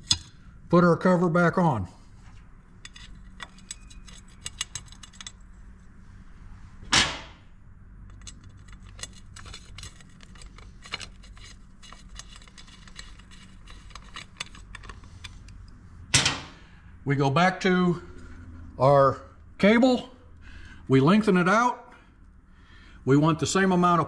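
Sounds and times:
small metal clicks and clinks: 0:02.8 - 0:05.4.

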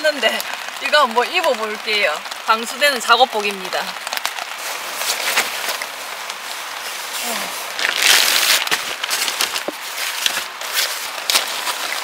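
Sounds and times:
rain patter: 0:00.0 - 0:12.0
waterproof suit rustling: 0:04.0 - 0:12.0.

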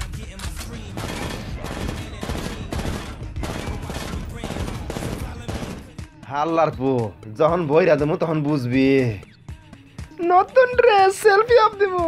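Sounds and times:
rapid rifle gunfire: 0:00.2 - 0:06.1.

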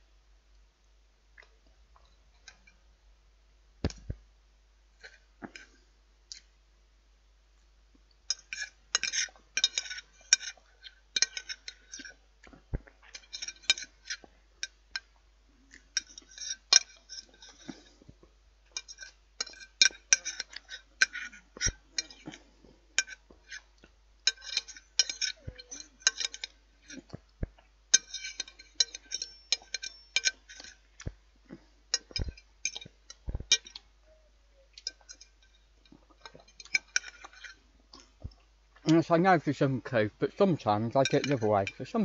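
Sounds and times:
cutlery clinking on plate: 0:08.3 - 0:10.6, 0:11.2 - 0:12.2, 0:18.7 - 0:23.7, 0:24.3 - 0:27.2, 0:28.0 - 0:30.8, 0:31.9 - 0:33.9, 0:34.8 - 0:37.6, 0:40.4 - 0:42.0.

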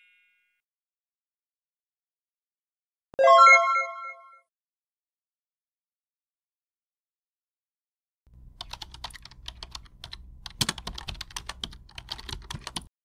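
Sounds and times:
rapid irregular clicking: 0:08.4 - 0:12.9.

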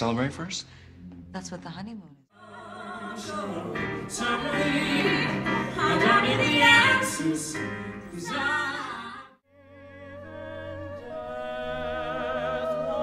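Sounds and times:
man and woman singing duet: 0:02.4 - 0:13.0.

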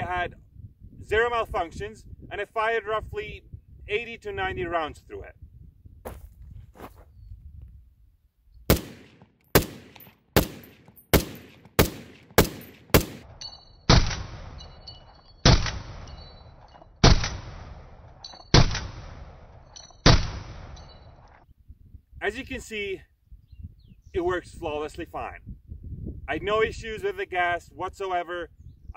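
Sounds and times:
rifle shots with echo: 0:08.7 - 0:16.3, 0:17.0 - 0:20.9.

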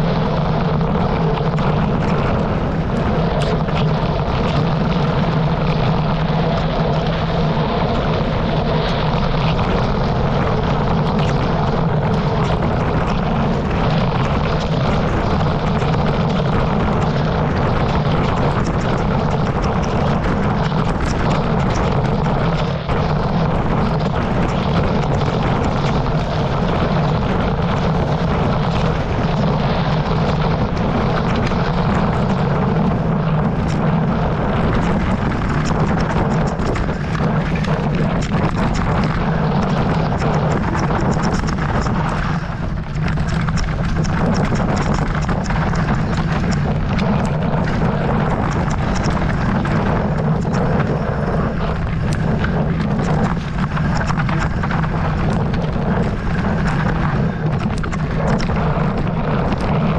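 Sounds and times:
tyres and wind rumble: 0:00.0 - 0:59.9
bike clicks and rattles: 0:08.7 - 0:59.9.

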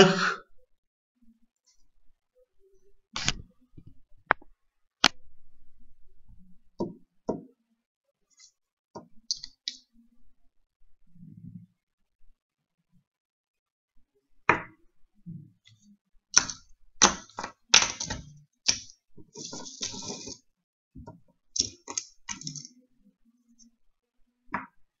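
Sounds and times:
rustling scrape: 0:19.2 - 0:20.4.

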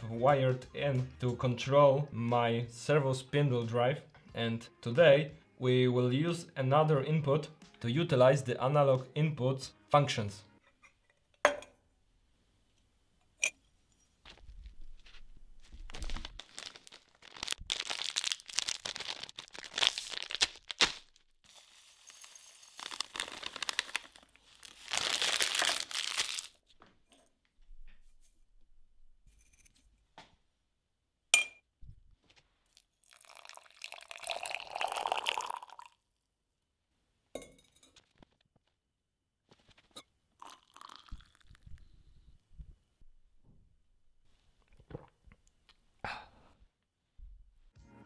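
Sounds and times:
plastic bag crinkling: 0:14.6 - 0:26.6
dry leaves poured rustling: 0:15.9 - 0:20.4, 0:21.5 - 0:26.5.

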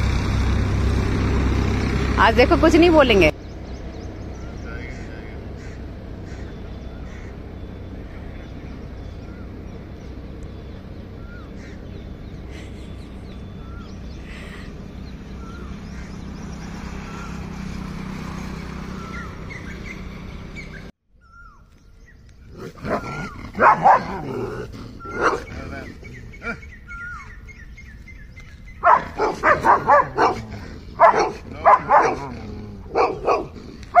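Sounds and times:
outdoor background noise: 0:00.0 - 0:34.0
dogs barking angrily: 0:22.5 - 0:27.3, 0:28.8 - 0:34.0.

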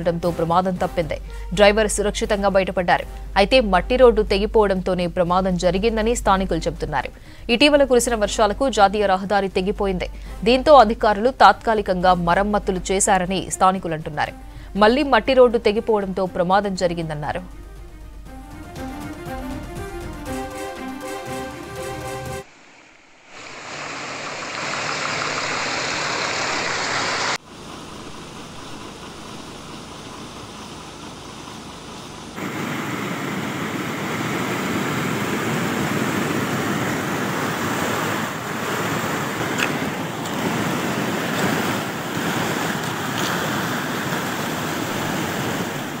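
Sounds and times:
floodwater rushing: 0:22.4 - 0:46.0.

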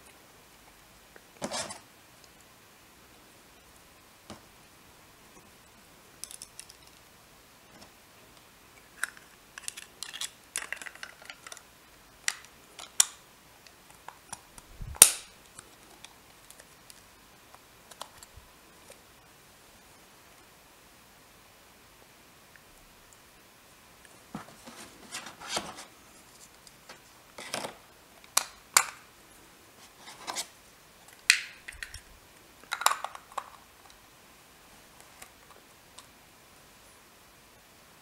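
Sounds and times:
plastic toy parts clicking: 0:06.2 - 0:07.0, 0:09.0 - 0:11.6, 0:32.7 - 0:33.6.

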